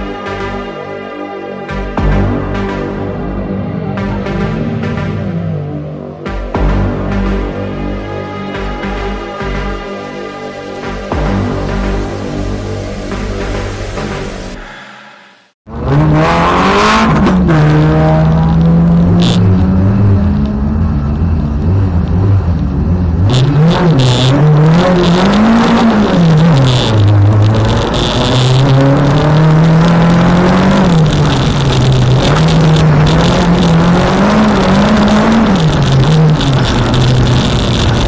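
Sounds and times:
car engine revving: 2.0 - 7.6, 15.7 - 38.0.

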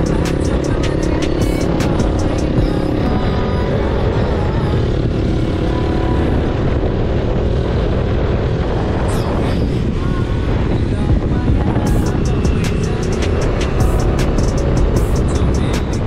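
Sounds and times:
motorcycle engine running: 0.0 - 16.0
wind buffeting microphone: 0.0 - 16.0.

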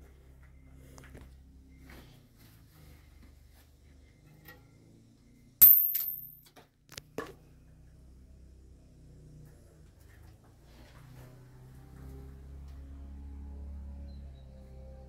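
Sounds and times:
metal clank with high ring: 5.6 - 6.4.

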